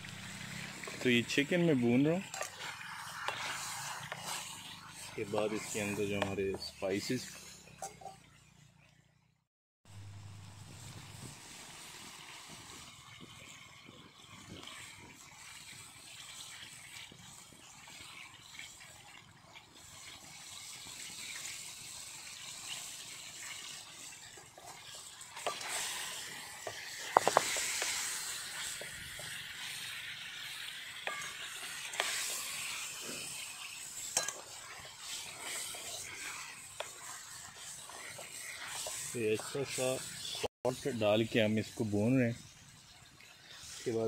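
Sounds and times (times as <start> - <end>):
chicken sizzling in a pan: 0.0 - 8.6, 9.9 - 44.0
wooden spoon knocking and scraping pan: 25.4 - 29.4, 31.0 - 32.7, 34.0 - 34.9.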